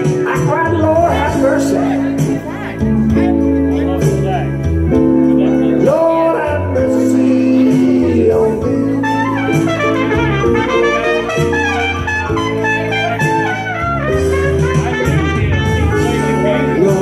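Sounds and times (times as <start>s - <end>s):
trumpet lead line: 9.0s - 17.0s.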